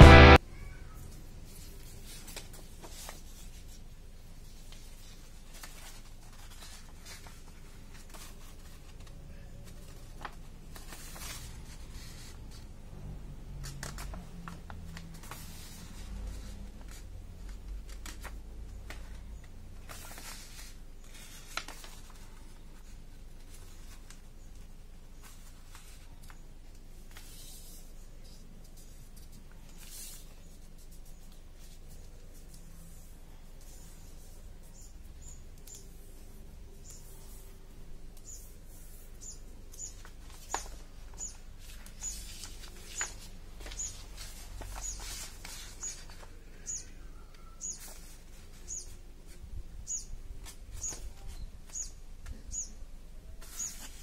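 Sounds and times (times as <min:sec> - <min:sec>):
paper rustling and crackling: 0:01.4 - 0:12.7, 0:13.5 - 0:34.4, 0:38.6 - 0:46.7, 0:47.4 - 0:49.4, 0:53.4 - 0:54.0.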